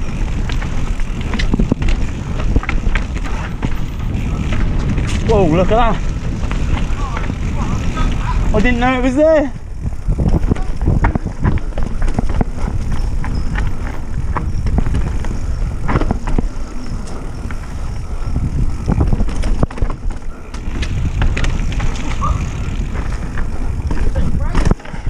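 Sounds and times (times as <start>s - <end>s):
bike knocking and rattling: 0.0s - 25.0s
bike tyres rumbling on dirt: 0.0s - 25.0s.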